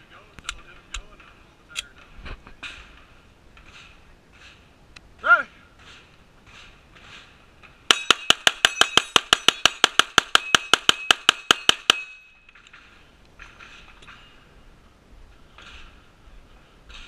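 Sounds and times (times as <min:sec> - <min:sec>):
steel targets ringing: 0:07.9 - 0:12.6.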